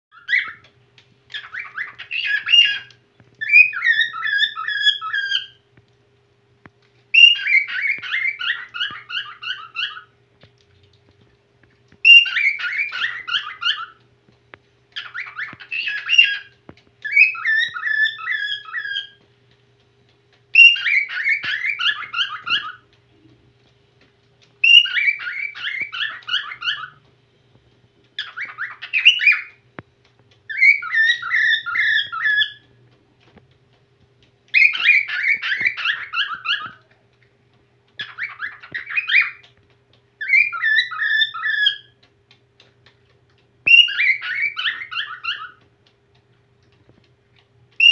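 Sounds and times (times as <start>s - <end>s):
cockatiel whistling: 0.1s - 0.6s, 1.3s - 5.6s, 7.1s - 10.1s, 12.0s - 14.0s, 15.0s - 19.2s, 20.5s - 22.8s, 24.6s - 27.0s, 28.2s - 29.6s, 30.5s - 32.7s, 34.5s - 36.8s, 38.0s - 39.4s, 40.2s - 42.0s, 43.6s - 45.6s.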